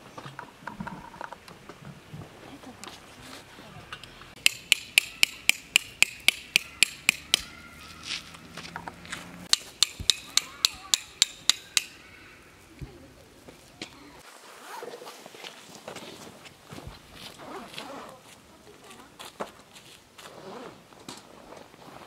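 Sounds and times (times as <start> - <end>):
metal tent pegs being hammered: 4.4 - 7.6, 8.7 - 12.0.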